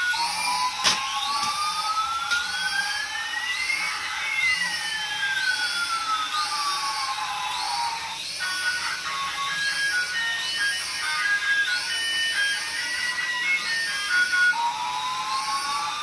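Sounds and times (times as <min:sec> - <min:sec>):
high gliding whine: 0:00.0 - 0:16.0
sharp click: 0:00.7 - 0:02.6.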